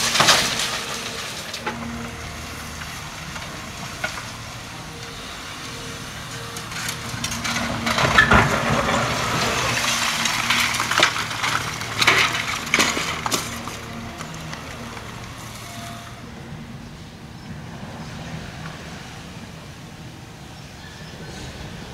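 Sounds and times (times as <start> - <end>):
concrete crunching and breaking: 0.0 - 2.0, 6.5 - 15.4
machine engine hum: 0.0 - 21.9.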